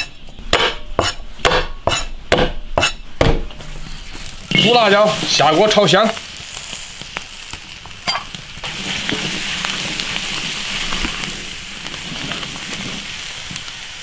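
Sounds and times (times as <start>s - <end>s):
chili peppers sizzling in wok: 0.0s - 14.0s.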